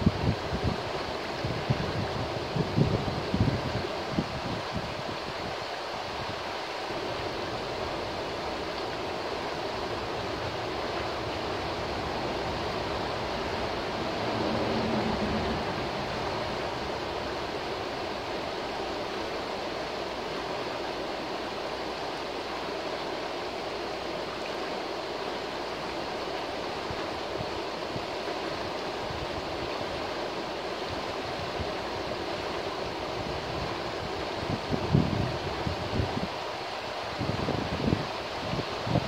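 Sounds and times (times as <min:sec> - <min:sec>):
river rushing over rocks: 0:00.0 - 0:39.0.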